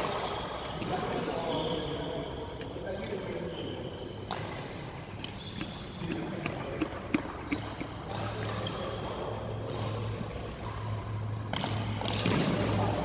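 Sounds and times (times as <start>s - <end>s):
badminton rackets hitting shuttlecock: 4.2s - 13.0s
shoes on wooden court floor: 4.3s - 13.0s.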